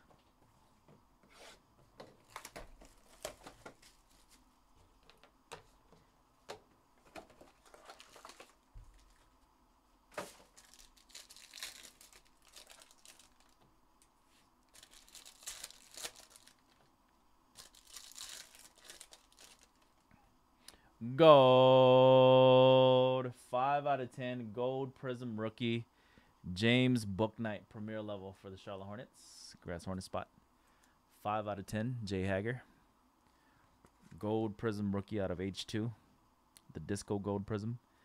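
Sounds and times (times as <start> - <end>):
crinkling and tapping of packs: 1.8 - 9.3, 10.1 - 13.7, 14.7 - 16.9, 17.6 - 20.0
plastic wrapping tearing: 7.4 - 9.2, 10.2 - 13.6, 14.7 - 16.8, 17.5 - 20.0.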